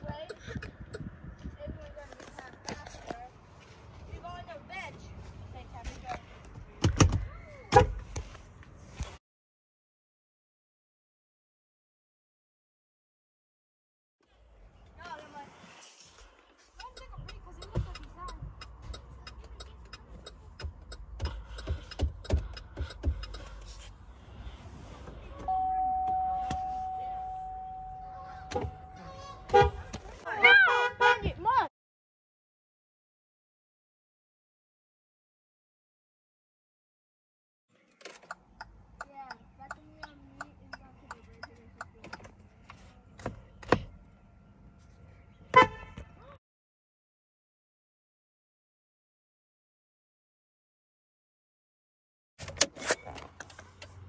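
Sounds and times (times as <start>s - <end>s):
turn-signal flasher ticking: 16.8s - 23.7s
car horn toot: 25.4s - 31.5s, 45.5s - 46.3s.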